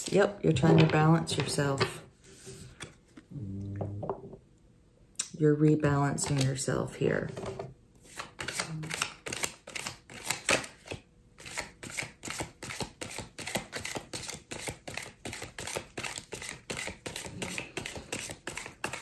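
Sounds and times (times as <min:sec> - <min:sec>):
cards being shuffled: 0:06.2 - 0:06.6, 0:07.4 - 0:19.0.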